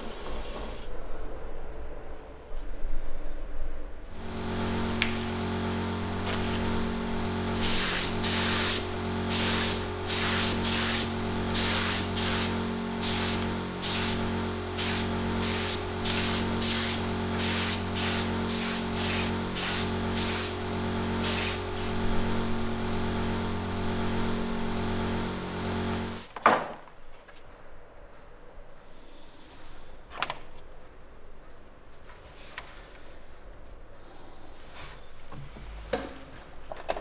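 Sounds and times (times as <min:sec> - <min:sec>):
steady electric hum: 0:03.0 - 0:26.3
spray paint hissing: 0:04.1 - 0:26.3.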